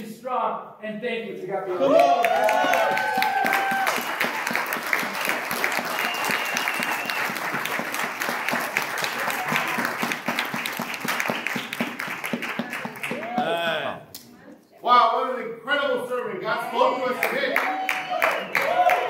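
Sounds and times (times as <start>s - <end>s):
congregation applauding: 1.8s - 14.0s, 17.0s - 19.0s.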